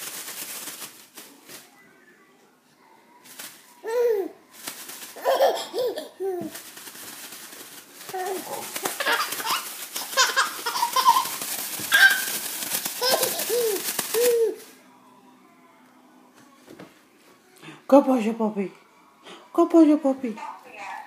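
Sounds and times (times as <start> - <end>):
plastic bag crinkling: 0.0 - 1.8, 3.2 - 14.8
baby laughing: 3.8 - 4.4, 5.2 - 6.5, 8.2 - 14.7.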